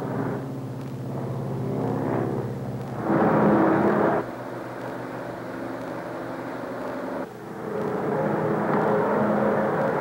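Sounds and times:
piston aircraft engines humming: 0:00.0 - 0:10.0.

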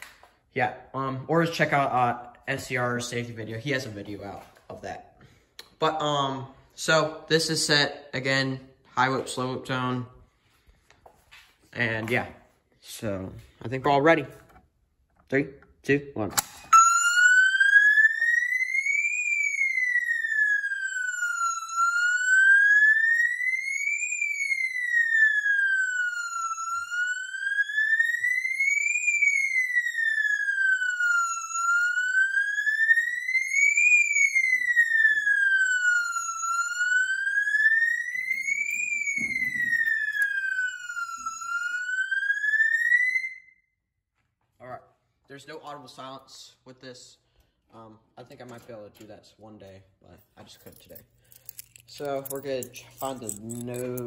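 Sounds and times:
fire alarm siren whooping: 0:00.0 - 0:14.2, 0:16.6 - 0:44.0, 0:51.4 - 0:54.0.

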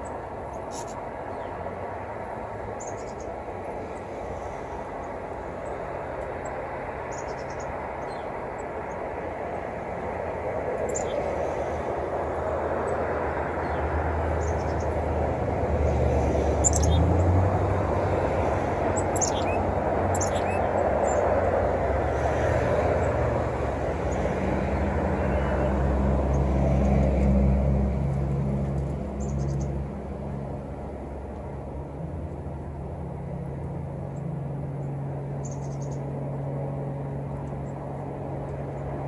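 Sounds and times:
vehicle engine rumble: 0:00.0 - 0:39.0
bird chirps: 0:00.6 - 0:01.5, 0:16.6 - 0:17.1, 0:19.0 - 0:21.2, 0:35.4 - 0:36.0.

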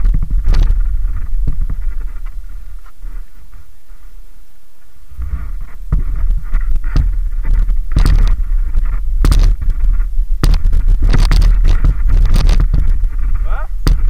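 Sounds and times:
heavy low rumbling: 0:05.0 - 0:14.0
sharp knocks: 0:05.2 - 0:14.0.

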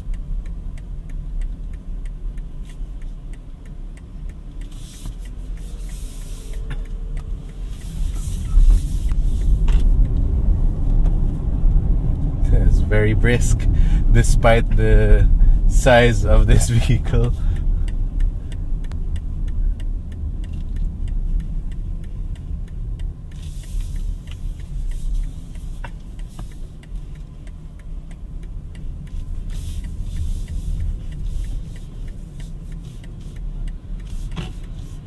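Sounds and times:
road and tyre rumble in car: 0:00.0 - 0:35.0.

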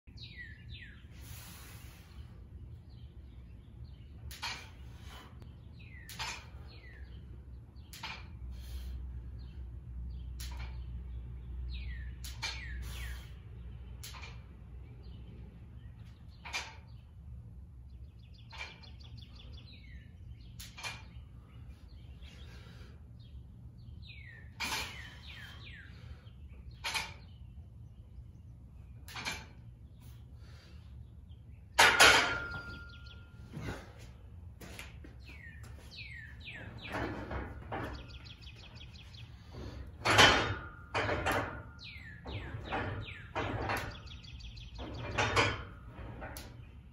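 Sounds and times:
birds chirping: 0:00.1 - 0:46.9
barbell knocks and clanks: 0:31.8 - 0:33.1.

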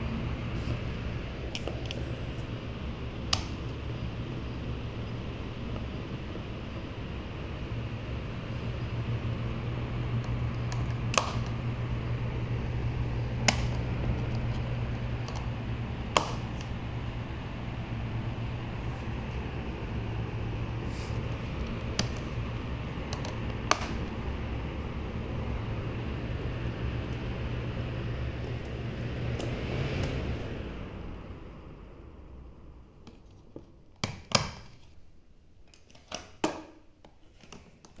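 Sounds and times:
electric fan running: 0:00.0 - 0:38.0.

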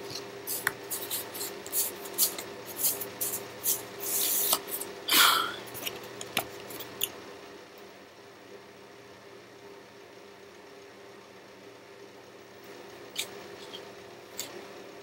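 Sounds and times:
faint steady hum: 0:00.0 - 0:15.0
paper cards rustling: 0:00.1 - 0:04.9.

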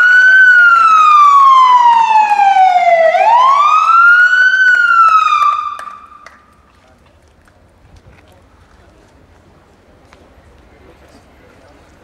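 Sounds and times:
fire engine siren wailing: 0:00.0 - 0:06.2.

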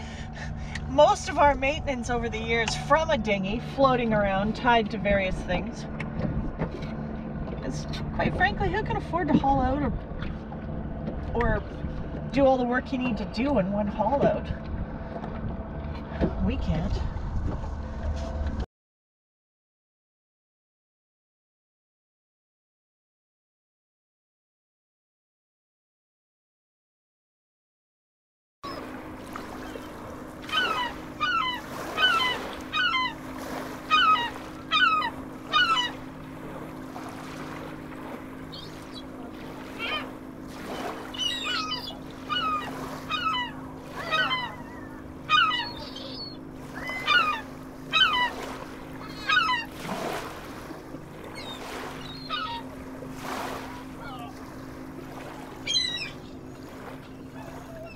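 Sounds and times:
steady low hum: 0:00.0 - 0:18.6, 0:28.7 - 0:57.9
birds calling: 0:28.6 - 0:57.9.

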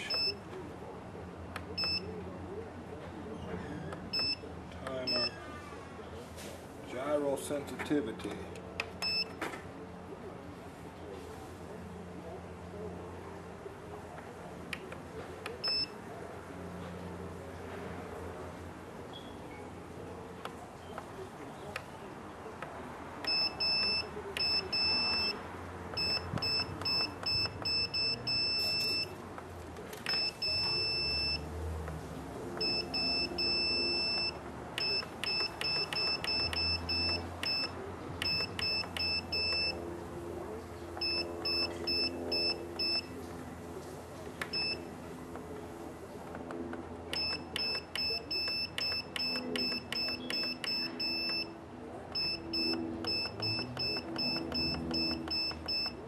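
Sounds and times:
short electronic beeps: 0:00.0 - 0:00.4, 0:23.2 - 0:25.4, 0:26.0 - 0:29.2, 0:30.1 - 0:31.4, 0:32.6 - 0:39.8, 0:41.0 - 0:43.1, 0:47.1 - 0:51.5, 0:52.2 - 0:56.0
keys being pressed: 0:23.2 - 0:39.8, 0:46.3 - 0:51.5, 0:52.2 - 0:56.0.

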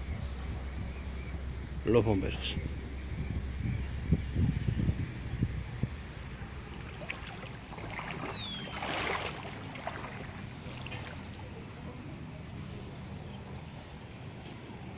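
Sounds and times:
low steady hum: 0:00.0 - 0:14.9
water sloshing from wading: 0:06.0 - 0:12.0.

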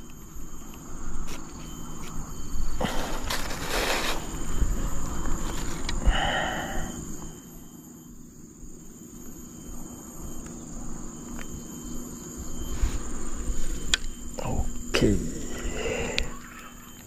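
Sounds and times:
high-pitched insect buzz: 0:00.0 - 0:17.0
rustle of plastic bags: 0:02.9 - 0:04.5.

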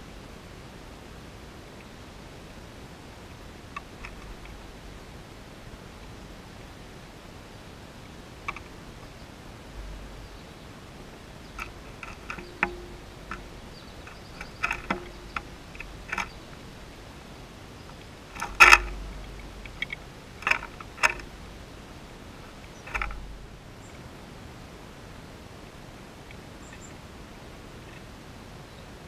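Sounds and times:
bird tapping on bird bath: 0:11.5 - 0:16.6, 0:18.3 - 0:21.5, 0:22.7 - 0:23.3.

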